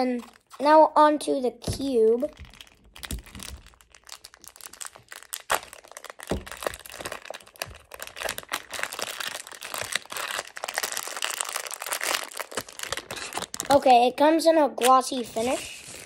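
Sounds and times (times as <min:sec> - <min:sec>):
plastic bag crinkling: 0:00.0 - 0:00.8, 0:01.7 - 0:14.2, 0:14.8 - 0:16.0.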